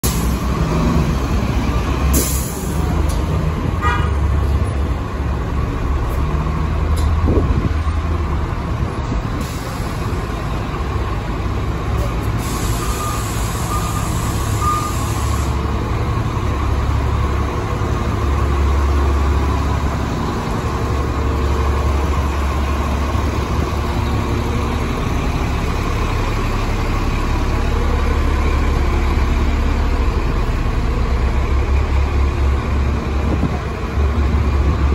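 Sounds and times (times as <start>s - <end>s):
bus diesel engine droning: 0.0s - 34.9s.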